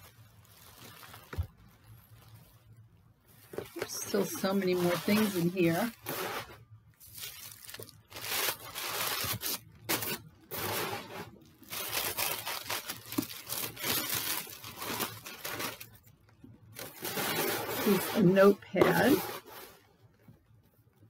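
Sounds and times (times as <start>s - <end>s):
tissue paper rustling: 0.0s - 16.1s, 16.7s - 19.9s.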